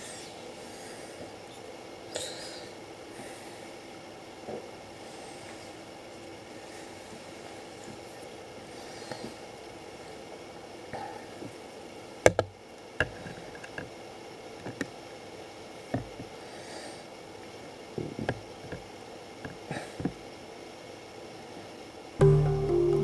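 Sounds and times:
steady low hiss: 20.9 - 23.0.

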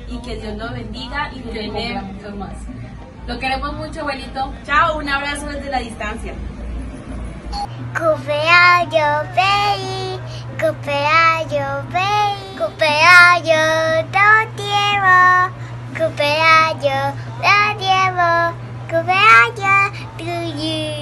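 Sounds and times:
girl singing: 7.9 - 21.0.

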